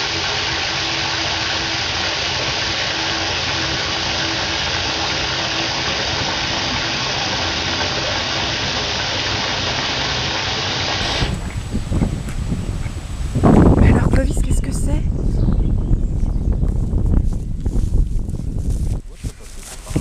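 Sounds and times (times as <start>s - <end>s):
steady rushing noise: 0.0s - 15.3s.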